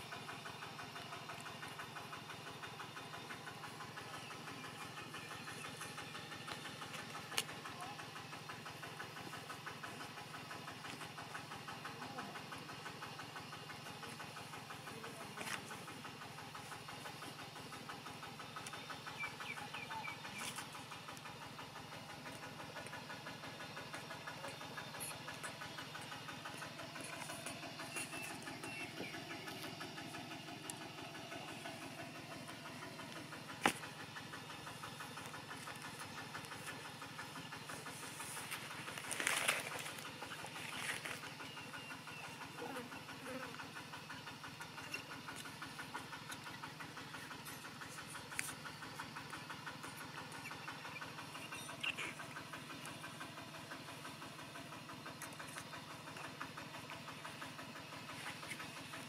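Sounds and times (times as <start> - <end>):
motor humming steadily: 0.0 - 59.0
rustle: 37.8 - 41.2.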